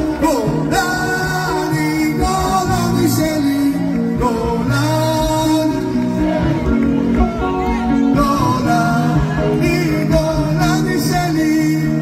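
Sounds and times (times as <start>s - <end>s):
band with bass and beat: 0.0s - 12.0s
man singing: 0.0s - 12.0s.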